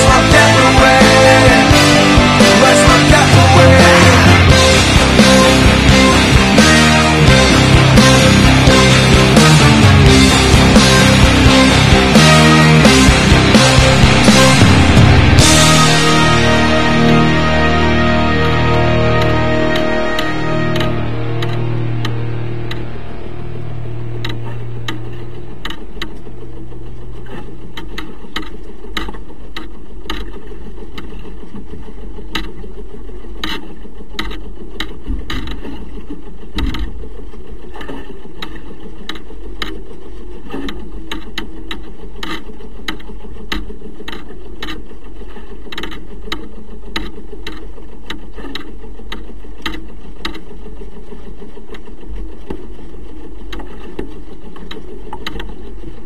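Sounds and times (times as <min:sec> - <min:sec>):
clicks and knocks from rigging: 0:27.2 - 0:56.0.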